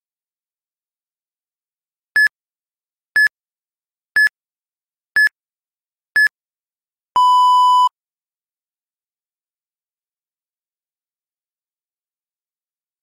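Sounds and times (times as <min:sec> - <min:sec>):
long low timer beep: 0:07.2 - 0:07.9.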